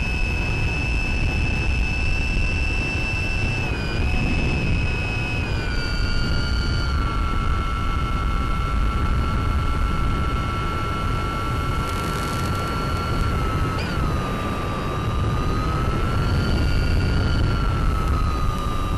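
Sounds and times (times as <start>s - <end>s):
electric motor whine: 0.0s - 18.9s
low wind rumble: 0.0s - 18.9s.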